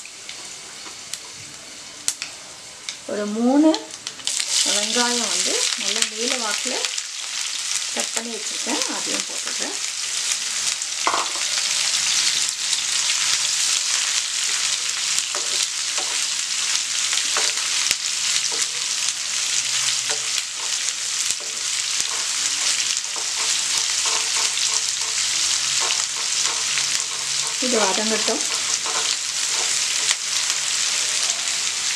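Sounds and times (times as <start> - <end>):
onions sizzling in oil: 0.0 - 31.9
wooden spatula scraping pan: 20.1 - 30.4.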